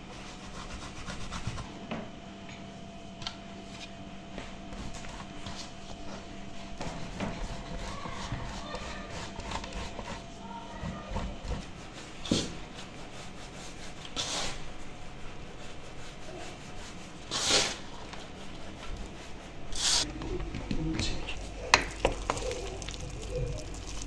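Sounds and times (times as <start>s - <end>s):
hands rubbing flour rustle: 21.4s - 24.0s.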